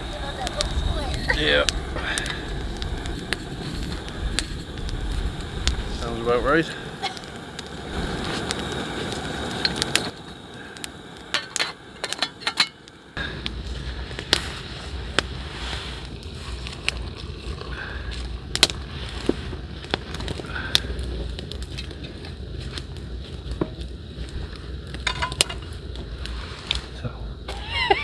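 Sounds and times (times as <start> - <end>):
wind on microphone: 0.0 - 12.1
campfire crackling: 0.0 - 28.0
camp cookware clicking: 10.8 - 12.9, 25.0 - 25.7.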